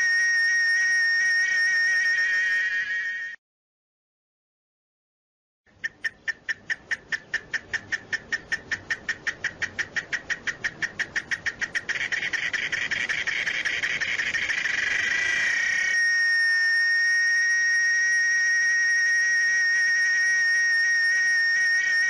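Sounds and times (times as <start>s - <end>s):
cicada singing: 5.8s - 22.0s.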